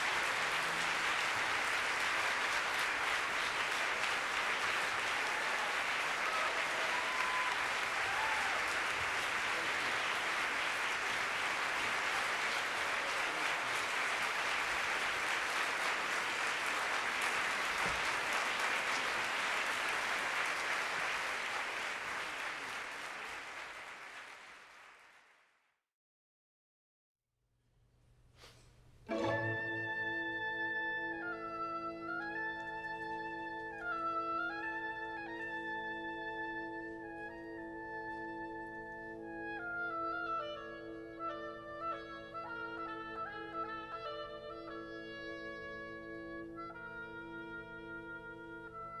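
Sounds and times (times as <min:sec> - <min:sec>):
audience applauding: 0:00.0 - 0:25.6
faint crowd calls: 0:03.7 - 0:21.7.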